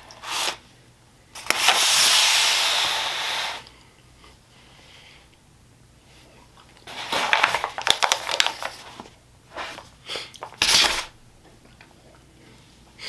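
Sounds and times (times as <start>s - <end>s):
aluminium foil tray crinkling: 6.9s - 9.8s.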